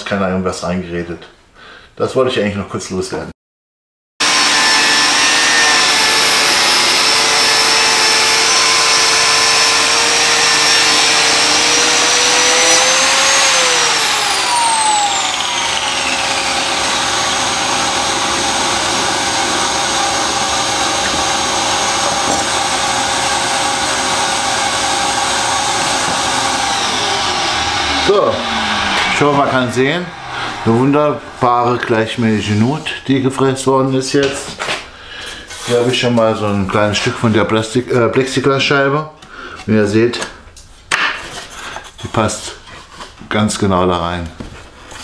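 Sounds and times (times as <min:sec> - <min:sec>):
biscuit joiner cutting wood: 0:04.2 - 0:33.5
shop vacuum running: 0:04.2 - 0:33.8.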